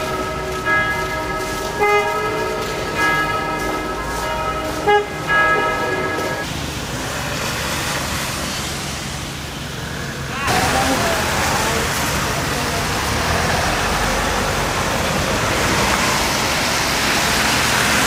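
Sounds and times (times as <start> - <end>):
tram wheels squealing on rails: 0.0 - 6.6
tram rumble approaching: 0.0 - 18.0.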